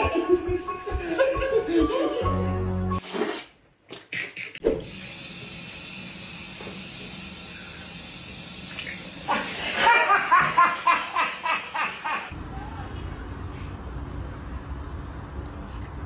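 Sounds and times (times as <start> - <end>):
liquid splashing over face: 8.7 - 11.4
loud laughter: 9.3 - 12.4.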